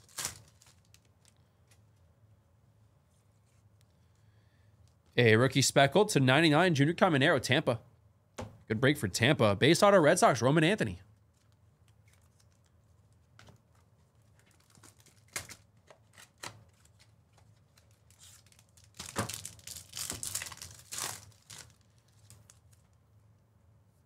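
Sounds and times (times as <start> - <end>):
foil wrappers tearing and crinkling: 0.0 - 1.4, 14.2 - 22.9.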